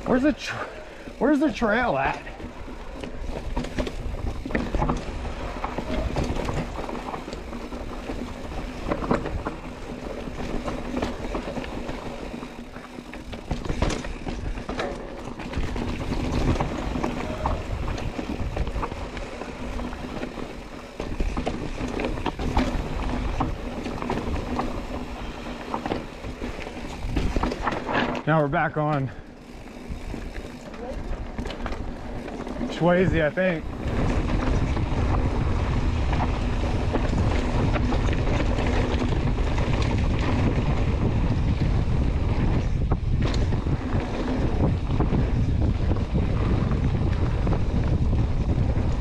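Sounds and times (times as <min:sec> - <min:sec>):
bike rattling: 0:00.0 - 0:49.0
bike tyres crunching on rocks: 0:00.0 - 0:49.0
wind on microphone: 0:15.6 - 0:20.2, 0:33.1 - 0:49.0.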